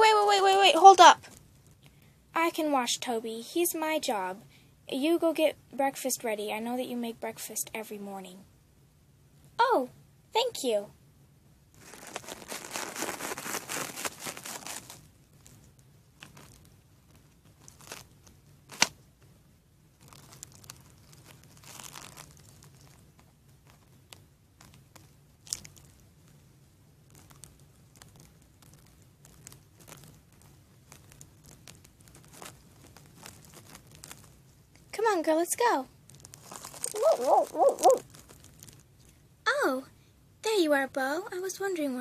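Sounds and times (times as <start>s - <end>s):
crinkling rustle of toys: 11.8s - 19.0s, 19.8s - 39.3s.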